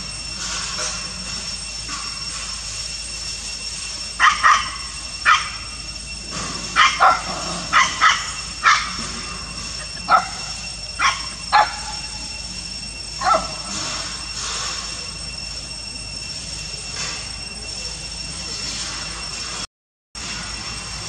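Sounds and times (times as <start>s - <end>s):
dogs barking: 4.2s - 5.7s, 6.6s - 12.2s, 13.2s - 13.8s.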